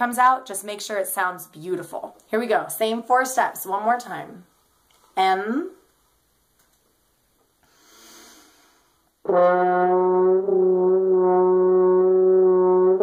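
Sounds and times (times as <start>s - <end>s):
deep breath drawn in: 7.6s - 9.1s
french horn sustained low note: 9.3s - 13.0s.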